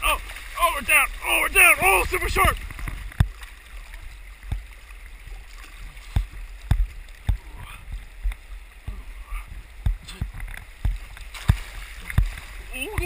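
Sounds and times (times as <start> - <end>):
whitewater rapids rushing: 0.0 - 3.1
waves thumping and splashing: 0.0 - 13.0.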